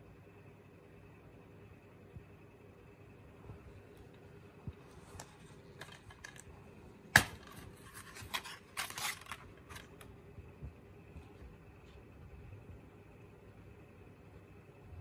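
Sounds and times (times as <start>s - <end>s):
plastic clicks and scrapes: 5.0s - 6.5s, 7.2s - 10.1s
plastic case snapping open: 7.2s - 10.0s
plastic case scraping and rubbing: 7.4s - 9.9s.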